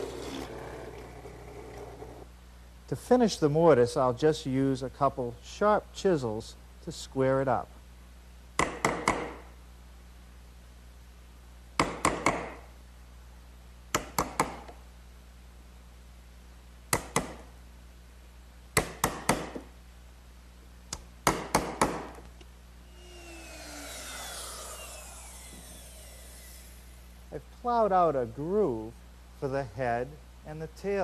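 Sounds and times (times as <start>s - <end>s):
router running: 0.0s - 2.3s, 22.9s - 27.2s
mallet striking a chisel: 11.8s - 12.6s, 16.9s - 17.4s, 18.8s - 19.6s.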